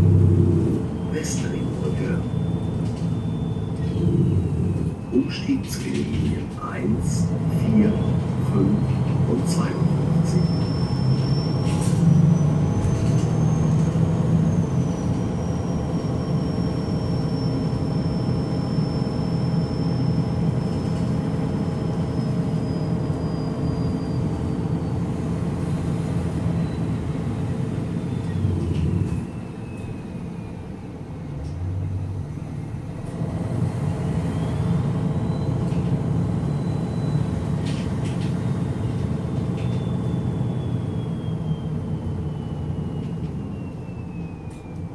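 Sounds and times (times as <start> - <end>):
diesel bus engine idling: 0.0 - 44.9.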